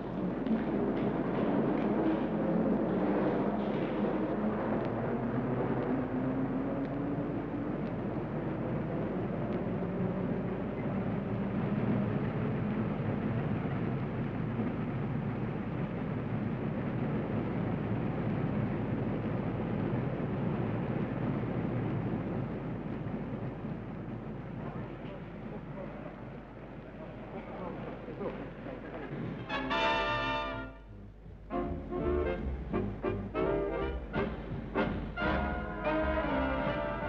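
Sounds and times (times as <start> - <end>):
escalator mechanical rumble: 30.8 - 37.0.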